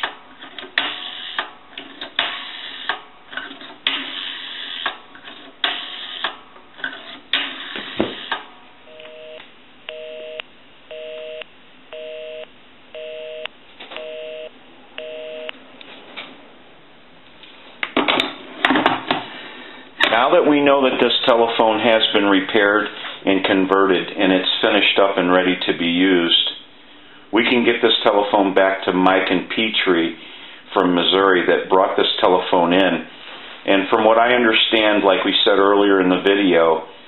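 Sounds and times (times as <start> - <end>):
telephone busy signal beeps: 8.9 - 15.6.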